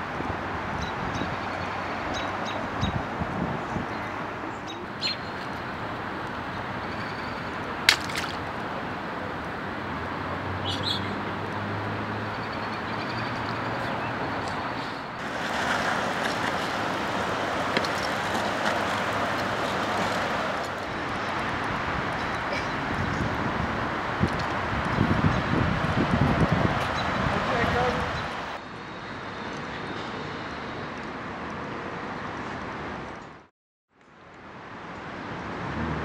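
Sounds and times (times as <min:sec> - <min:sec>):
outdoor background noise: 0:00.0 - 0:36.0
bird chirps: 0:10.6 - 0:11.2.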